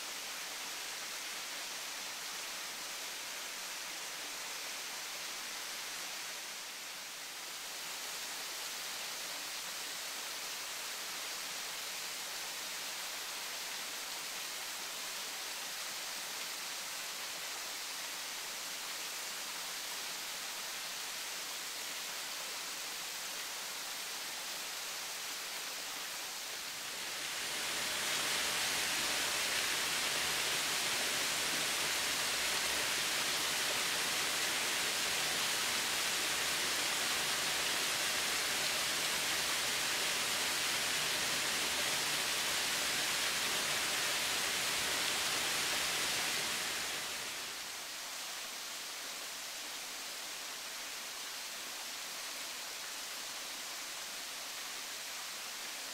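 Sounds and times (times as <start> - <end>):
waterfall rushing: 23.9 - 48.7.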